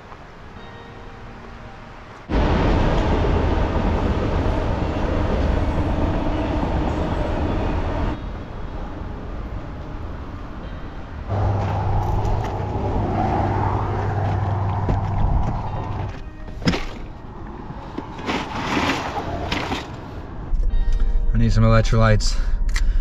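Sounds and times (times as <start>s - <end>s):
passing vehicles rumble: 1.8s - 21.4s
low hum: 11.3s - 18.2s.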